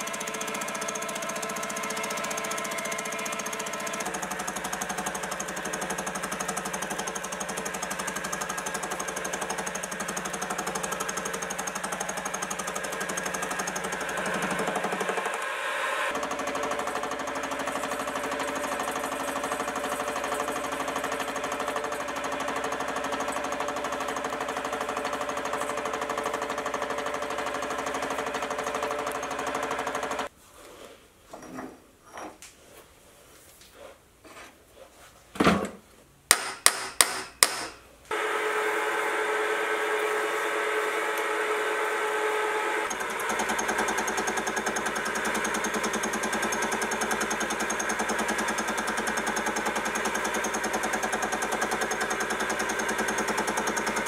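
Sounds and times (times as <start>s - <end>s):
milling machine whine: 38.1s - 54.0s.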